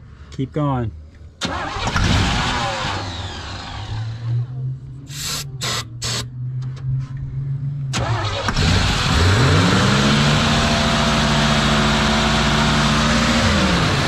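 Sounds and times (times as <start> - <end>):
truck engine starting and idling: 1.4 - 6.9, 7.9 - 14.0
spray hissing: 5.1 - 6.3.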